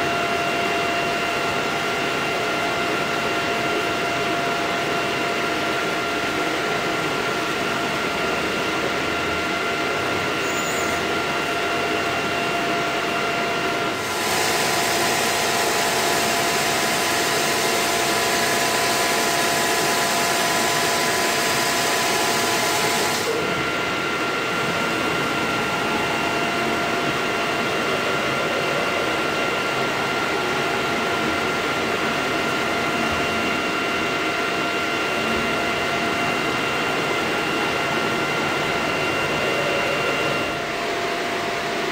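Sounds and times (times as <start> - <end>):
machining center hum and whine: 0.0 - 41.9
loud hiss: 14.0 - 17.1.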